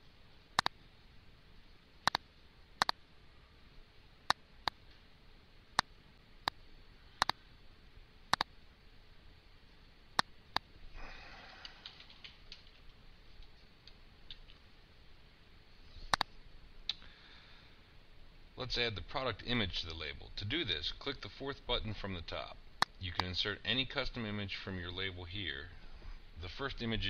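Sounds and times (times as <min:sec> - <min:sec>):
computer mouse clicks: 0:02.0 - 0:02.2, 0:02.8 - 0:03.0, 0:07.2 - 0:07.4, 0:08.3 - 0:08.5, 0:11.6 - 0:14.6, 0:15.9 - 0:16.3
rapid keyboard typing: 0:11.6 - 0:13.0.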